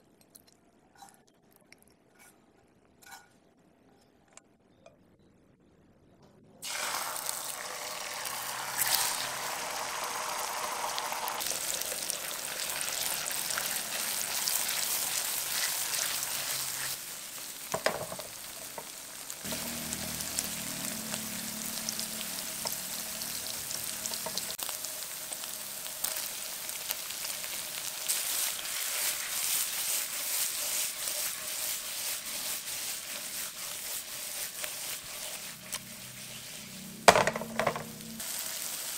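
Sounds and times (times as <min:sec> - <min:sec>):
food sizzling in hot oil: 0:06.6 - 0:38.9
stirring in a pan: 0:11.4 - 0:38.9.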